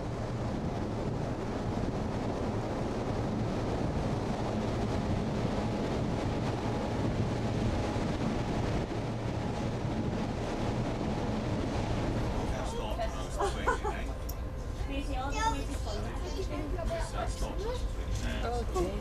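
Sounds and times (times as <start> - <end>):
wind on microphone: 0.0 - 12.5
sea rushing: 0.0 - 14.2
ship engines droning: 0.0 - 19.0.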